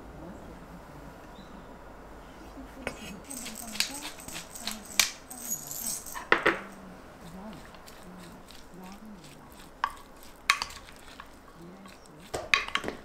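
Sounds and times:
kitchenware clinking on glass container: 3.2 - 6.8, 7.6 - 13.0.

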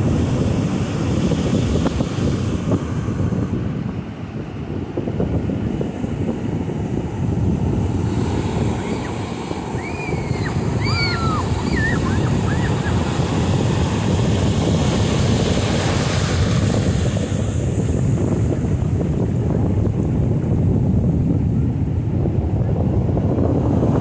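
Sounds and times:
ocean surf breaking: 0.0 - 24.0
wind buffeting microphone: 0.0 - 24.0
backwash washing up sand: 5.3 - 24.0.

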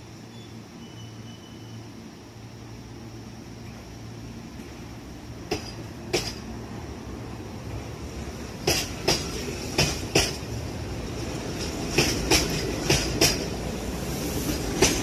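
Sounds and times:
train rumble: 0.0 - 15.0
train wheels clicking over rail joint: 5.4 - 6.5, 8.6 - 10.6, 11.4 - 13.7, 14.4 - 15.0.

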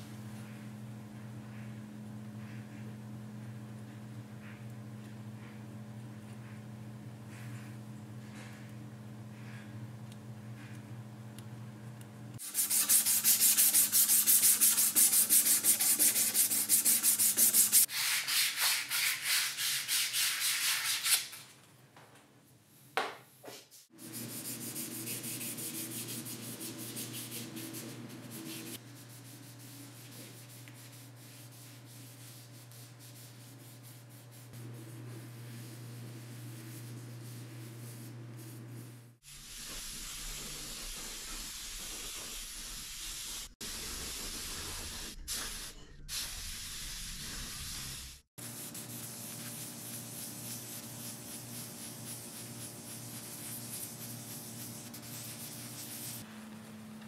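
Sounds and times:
steady low hum: 0.0 - 17.9, 24.0 - 39.2.

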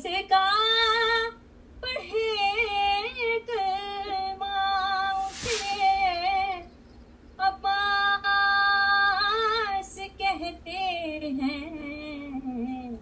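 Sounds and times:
short hiss: 4.8 - 6.5.

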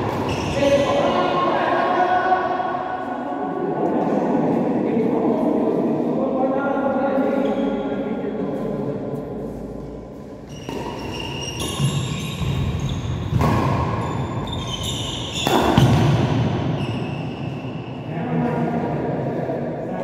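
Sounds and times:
shoes squeaking on court: 0.0 - 1.0, 9.6 - 17.8
rackets hitting shuttlecock: 10.5 - 16.8.

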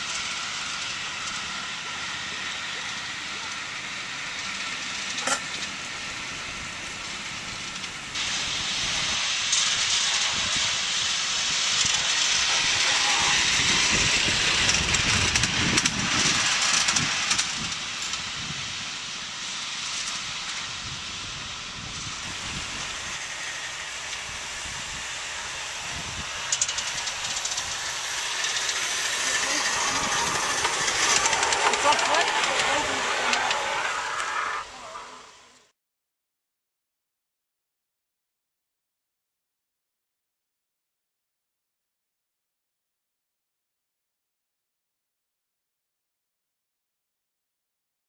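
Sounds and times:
model steam locomotive hissing: 0.0 - 35.7.

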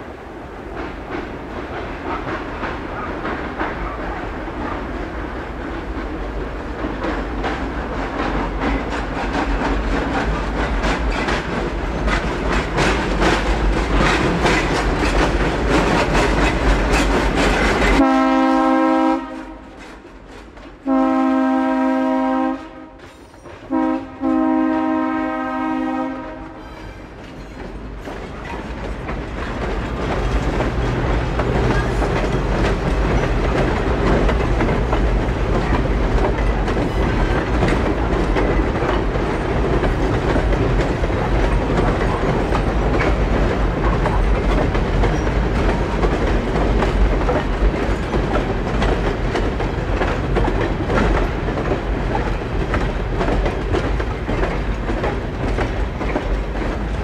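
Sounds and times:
diesel locomotive engine rumble: 0.0 - 57.0
train wheels clicking over rail joints: 0.2 - 57.0
locomotive horn: 18.0 - 19.8, 20.8 - 23.1, 23.7 - 27.2.

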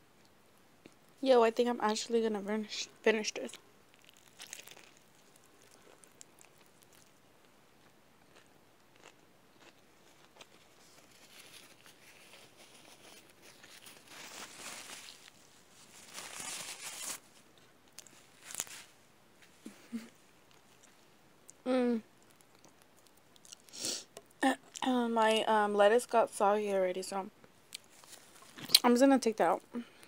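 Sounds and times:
person chewing food: 3.9 - 15.6, 19.6 - 24.4.

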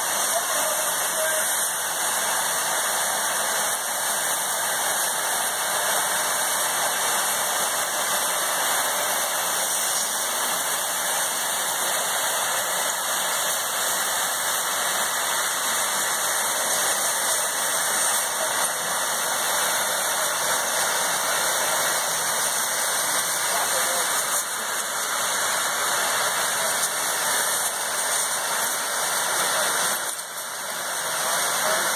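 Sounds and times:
compressed air hissing: 0.0 - 31.8.

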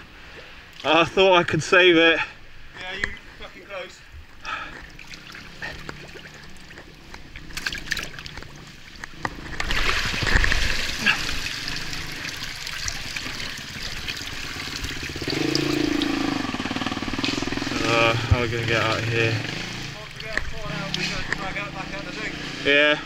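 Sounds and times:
creek water splashing: 2.3 - 22.6
motorcycle engine running: 13.1 - 22.7.

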